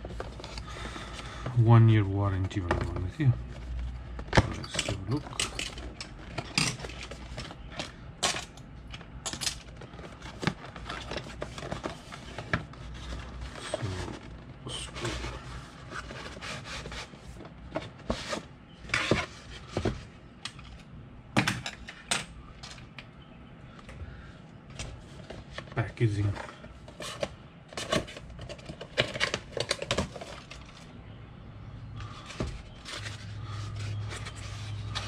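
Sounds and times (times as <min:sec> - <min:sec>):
cardboard rubbing and scraping: 0:10.2 - 0:20.1, 0:32.0 - 0:35.0.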